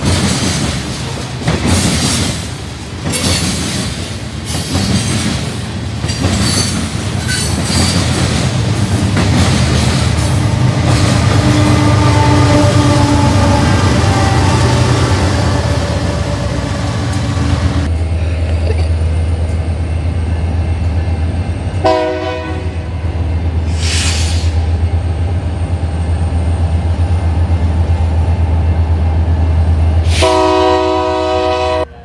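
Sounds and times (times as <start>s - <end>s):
diesel locomotive engine drone: 0.0s - 32.0s
locomotive air horn blast: 10.3s - 17.6s, 21.8s - 23.0s, 30.1s - 32.0s
brief hiss: 23.7s - 24.6s.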